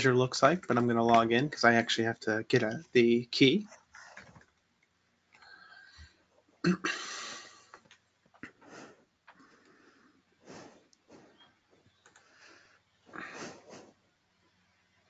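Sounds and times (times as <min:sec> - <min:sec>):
soft clicks: 0:12.0 - 0:12.3.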